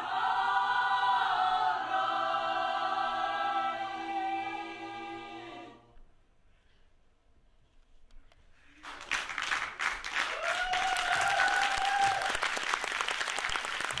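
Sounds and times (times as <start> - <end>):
people applauding: 8.8 - 14.0.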